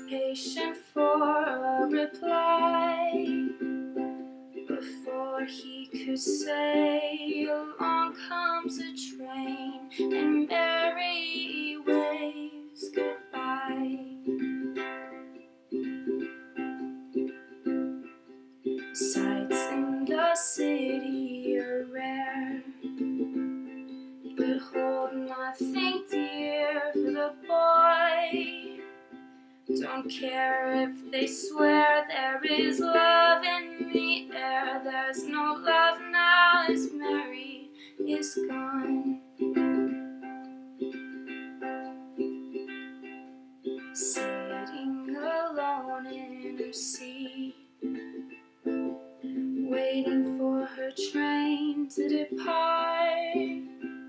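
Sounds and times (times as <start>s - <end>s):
young woman singing: 0.0s - 3.7s, 4.6s - 14.5s, 19.0s - 23.0s, 24.3s - 28.9s, 29.7s - 39.9s, 43.9s - 47.7s, 49.6s - 53.9s
ukulele strumming: 0.0s - 54.0s.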